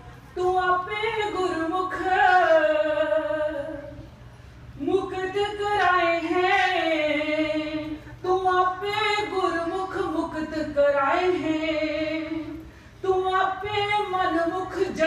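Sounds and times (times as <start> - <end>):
woman singing a hymn unaccompanied: 0.0 - 4.0, 4.8 - 15.0.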